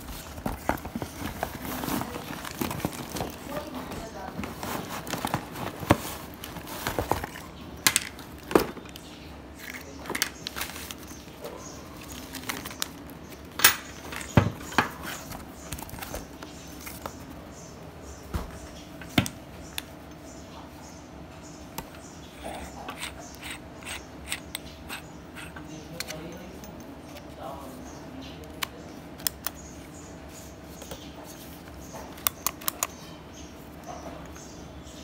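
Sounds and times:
cardboard box and plastic handling: 0:00.0 - 0:09.0, 0:09.6 - 0:11.4, 0:12.0 - 0:17.4.

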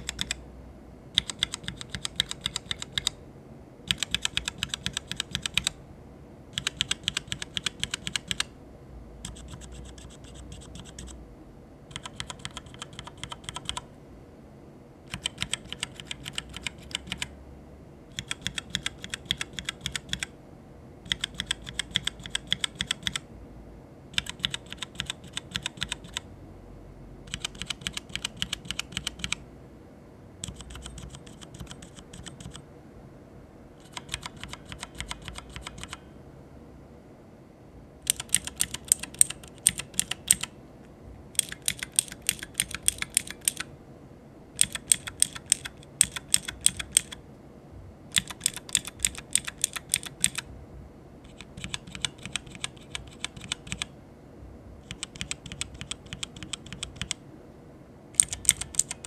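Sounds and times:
keyboard switches clicking: 0:00.0 - 0:00.4, 0:01.2 - 0:03.2, 0:03.9 - 0:05.8, 0:06.6 - 0:08.5, 0:11.9 - 0:13.8, 0:15.1 - 0:17.3, 0:18.1 - 0:20.3, 0:21.1 - 0:23.2, 0:24.2 - 0:26.2, 0:27.3 - 0:29.4, 0:30.4 - 0:32.6, 0:33.8 - 0:36.0, 0:38.1 - 0:40.5, 0:41.4 - 0:43.7, 0:44.6 - 0:47.2, 0:48.1 - 0:50.5, 0:51.3 - 0:53.9, 0:54.8 - 0:57.2, 0:58.2 - 0:59.0.

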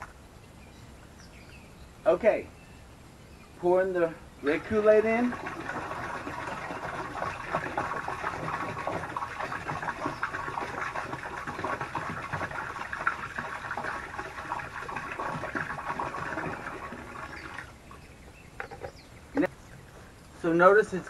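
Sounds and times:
liquid pouring and splashing: 0:04.6 - 0:18.0.

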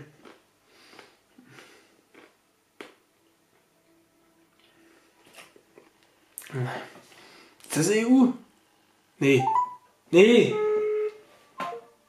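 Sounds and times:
faint breaths: 0:06.5 - 0:07.6.

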